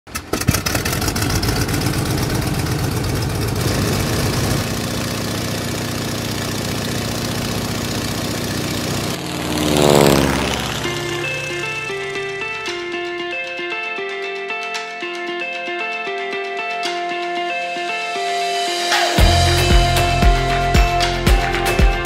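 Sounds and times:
model airplane motor buzzing: 0.4 - 12.1.

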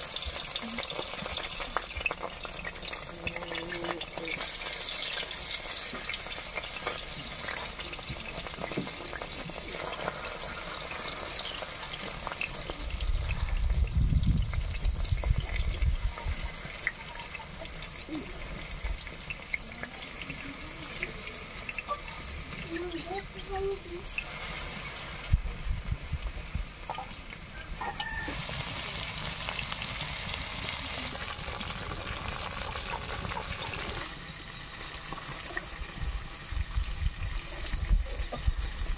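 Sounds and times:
curry simmering and sizzling: 0.0 - 38.9.

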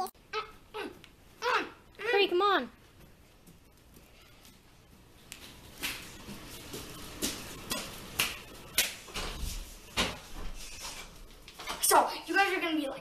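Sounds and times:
footsteps on tiled floor: 2.8 - 11.8.

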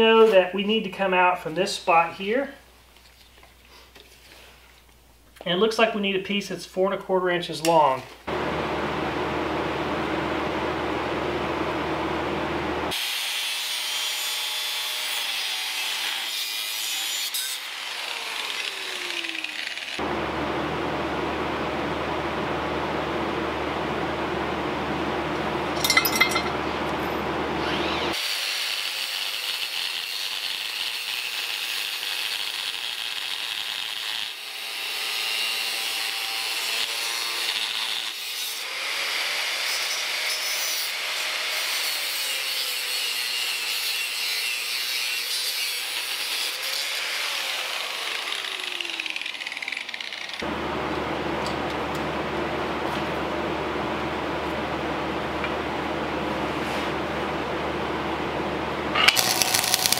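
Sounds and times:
angle grinder cutting steel: 12.9 - 20.0, 27.6 - 50.5, 59.0 - 59.9.

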